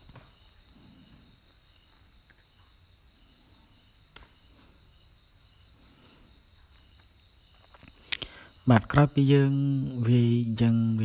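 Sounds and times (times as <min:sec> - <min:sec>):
crickets chirring: 0:00.0 - 0:11.0
sharp click: 0:04.1 - 0:04.4.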